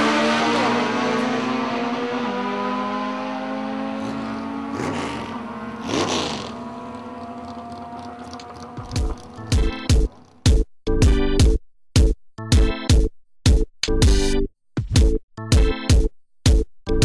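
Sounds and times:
race car engines at full throttle: 0.0s - 10.4s.

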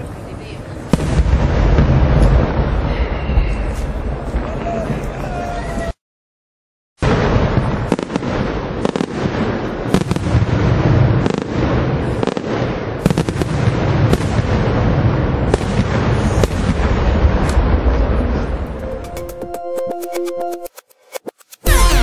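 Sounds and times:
fireworks bangs: 0.0s - 5.9s, 7.0s - 19.4s
low rumble: 17.2s - 19.7s.

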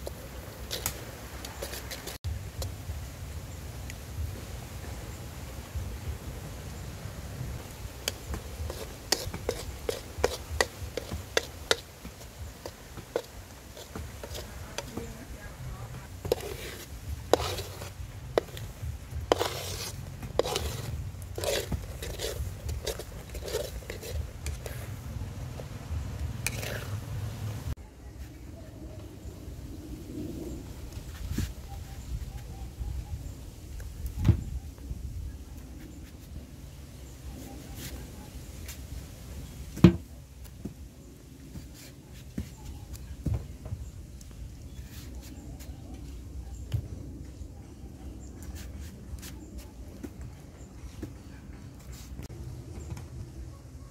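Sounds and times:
metal ladle scraping a wok: 8.0s - 14.5s, 16.2s - 24.9s, 26.4s - 27.0s
knife cutting into mango: 16.2s - 25.0s.

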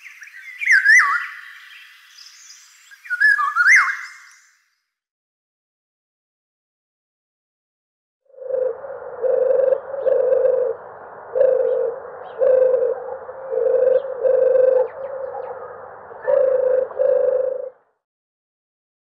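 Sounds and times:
dove cooing: 8.3s - 17.9s
small birds chirping faintly: 8.4s - 18.0s.

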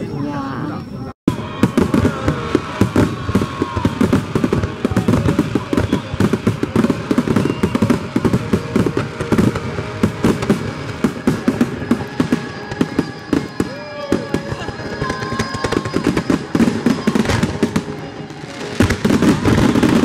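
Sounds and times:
fireworks bangs and crackles: 1.3s - 20.0s.

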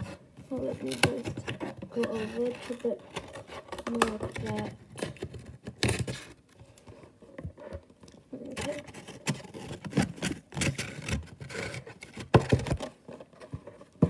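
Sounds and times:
cardboard box scraping and rubbing: 0.0s - 4.8s, 8.4s - 14.0s.

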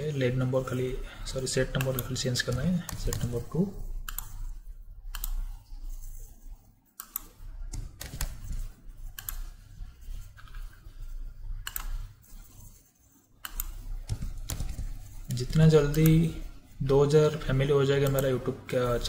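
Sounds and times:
low steady hum: 0.0s - 19.0s
keyboard and mouse clicks: 1.7s - 12.8s, 13.4s - 16.5s, 17.9s - 18.5s.

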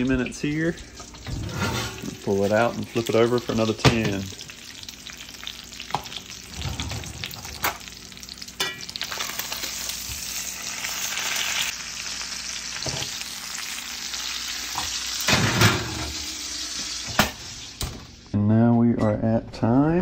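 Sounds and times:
fat sizzling in a skillet: 0.0s - 18.3s
skillet clattering onto oven rack: 15.3s - 16.1s.

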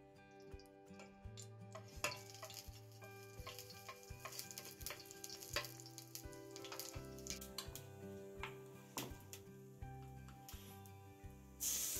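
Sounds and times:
seeds sizzling and popping in oil: 0.2s - 11.9s.

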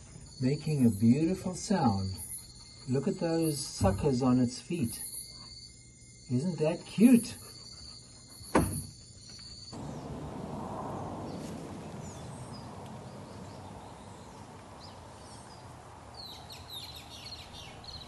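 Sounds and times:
small birds chirping: 0.0s - 18.0s
low rushing hiss: 9.8s - 17.9s.

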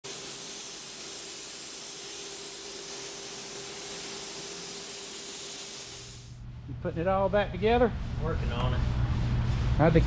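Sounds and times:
spray gun hissing: 0.0s - 6.4s.

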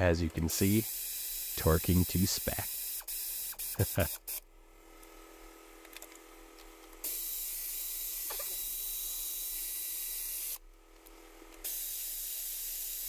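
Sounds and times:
compressed air hissing: 0.5s - 4.4s.

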